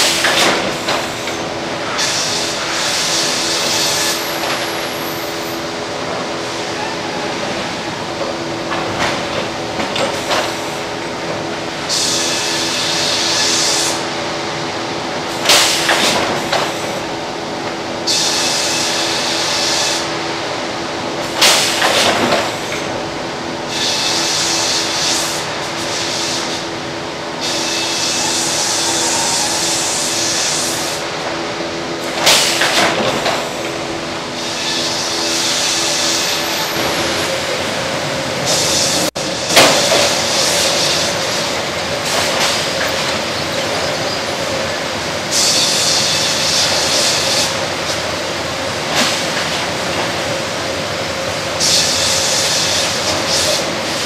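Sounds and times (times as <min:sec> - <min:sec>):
sawmill machinery drone: 0:00.0 - 0:54.0.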